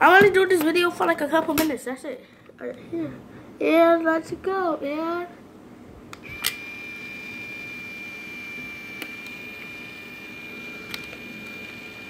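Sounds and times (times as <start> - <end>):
camera clicks: 6.2 - 6.6
camera flash charging whine: 6.2 - 12.0.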